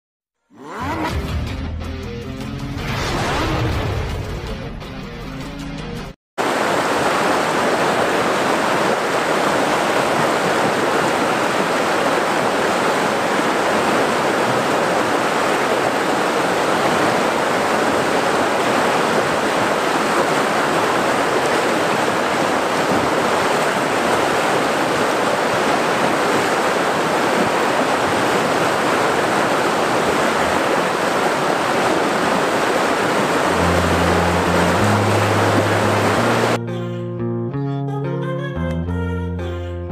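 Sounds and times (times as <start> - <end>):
river water rushing over rocks: 6.4 - 36.6
low musical notes: 33.5 - 39.9.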